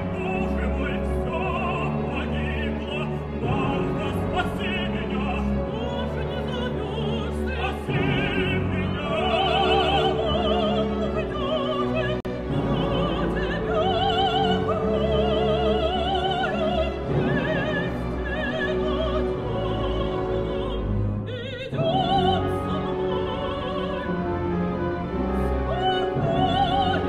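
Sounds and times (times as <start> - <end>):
operatic female singing: 0.0 - 27.0
orchestra with bowed strings: 0.0 - 27.0.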